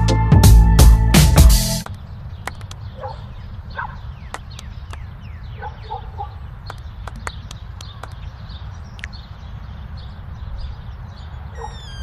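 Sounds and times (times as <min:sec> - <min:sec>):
birds chirping: 0:01.8 - 0:12.0
wind rumble on microphone: 0:02.1 - 0:12.0
horse hooves clicking on dirt: 0:06.6 - 0:08.3.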